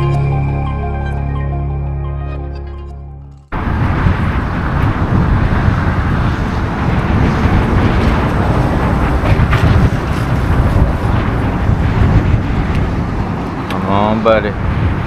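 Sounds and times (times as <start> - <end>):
wind buffeting microphone: 3.5 - 15.0.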